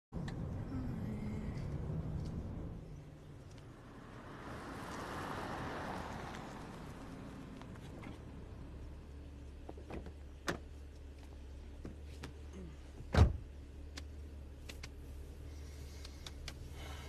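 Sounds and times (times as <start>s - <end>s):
idling car hum: 0.2s - 17.0s
car door opening: 13.0s - 13.4s
car door shutting: 13.0s - 13.5s.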